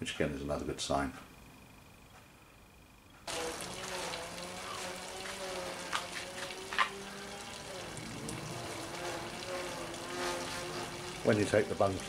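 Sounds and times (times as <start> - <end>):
steady low hum: 0.0 - 12.0
water splashing onto grass: 3.3 - 12.0.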